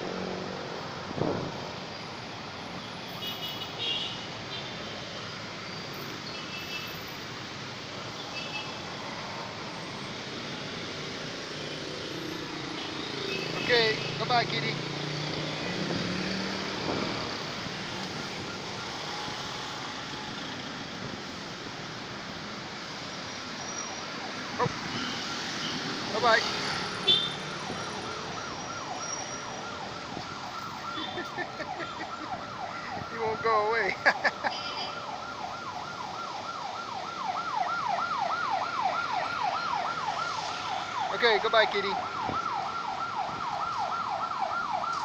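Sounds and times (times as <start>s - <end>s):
distant city traffic hum: 0.0s - 45.0s
electronic siren yelping: 24.0s - 45.0s.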